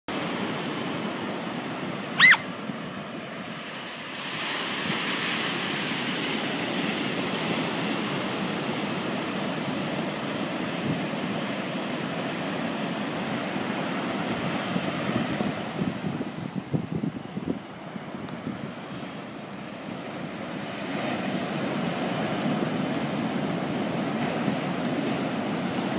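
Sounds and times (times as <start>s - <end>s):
ocean surf breaking on beach: 0.1s - 25.9s
high-pitched chirp: 2.2s - 2.4s.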